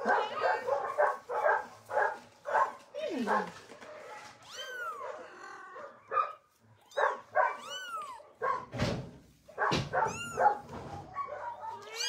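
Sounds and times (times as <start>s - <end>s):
kittens mewing: 4.4s - 8.7s, 9.9s - 10.7s, 11.7s - 12.0s.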